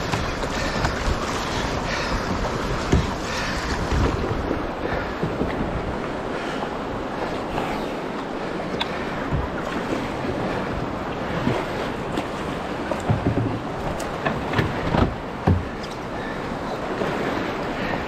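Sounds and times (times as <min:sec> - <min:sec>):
river current rushing and splashing: 0:00.0 - 0:18.0
wind buffeting microphone: 0:00.0 - 0:18.0.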